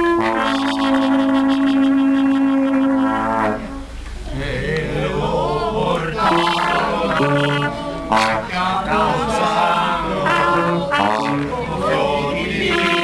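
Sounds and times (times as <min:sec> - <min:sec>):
trombones and wind instruments: 0:00.0 - 0:04.0, 0:06.2 - 0:13.0
voices singing chant-like: 0:04.2 - 0:13.0.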